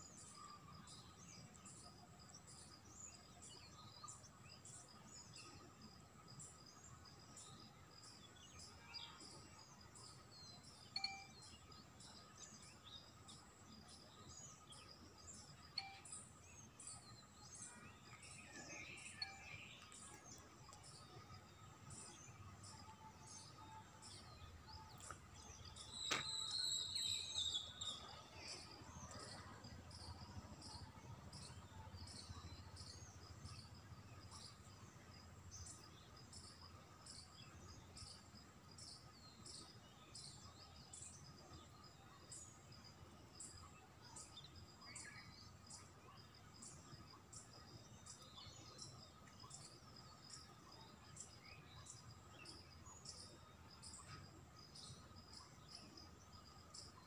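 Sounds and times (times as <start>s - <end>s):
insects chirping: 0.0s - 57.0s
thin high tone: 11.0s - 11.5s
bird whistled call: 26.0s - 27.8s.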